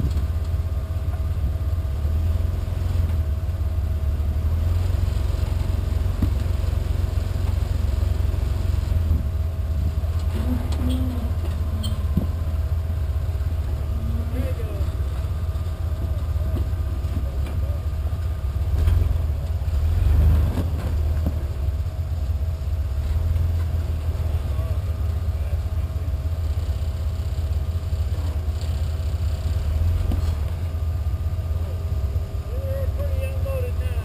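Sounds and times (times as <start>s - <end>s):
buggy engine rumbling under load: 0.0s - 34.0s.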